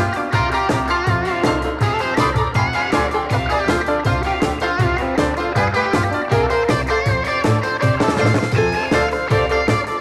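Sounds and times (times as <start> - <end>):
upbeat background music: 0.0 - 10.0.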